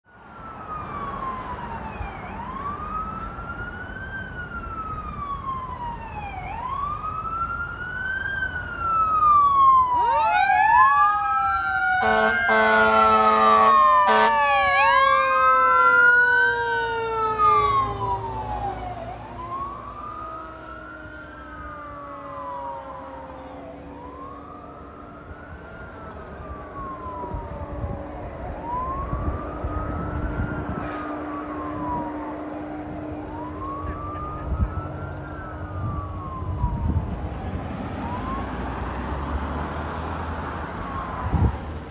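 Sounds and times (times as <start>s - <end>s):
fire engine siren wailing: 0.0s - 41.9s
second siren tone: 9.1s - 16.2s, 16.9s - 38.9s
steady horn blast: 12.0s - 14.4s.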